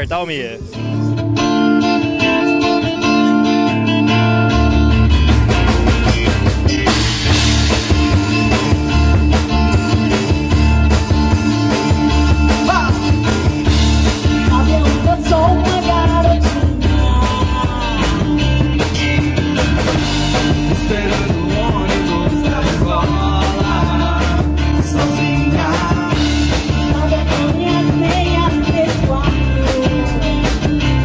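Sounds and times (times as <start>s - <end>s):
live pop-rock band playing: 0.0s - 31.0s
woman singing: 14.2s - 19.5s, 20.7s - 31.0s.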